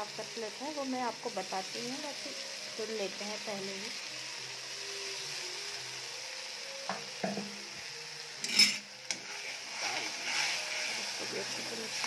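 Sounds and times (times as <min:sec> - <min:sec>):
masala sizzling in oil: 0:00.0 - 0:12.0
spoon knocking against pan: 0:06.9 - 0:07.6.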